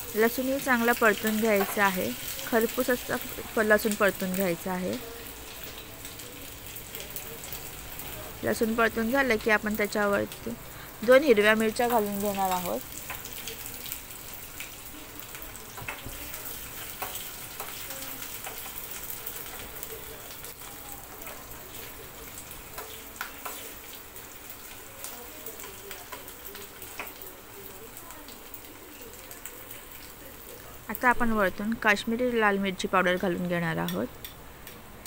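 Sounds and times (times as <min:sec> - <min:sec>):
garlic sizzling in hot oil: 0:00.0 - 0:35.0
spoon clicking against pan: 0:22.8 - 0:23.6, 0:33.8 - 0:34.8.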